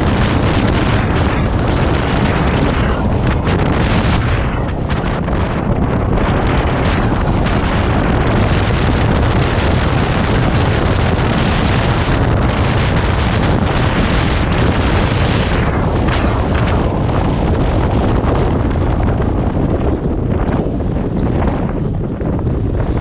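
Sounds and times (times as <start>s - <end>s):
motorcycle road noise: 0.0s - 23.0s
wind buffeting microphone: 0.0s - 23.0s.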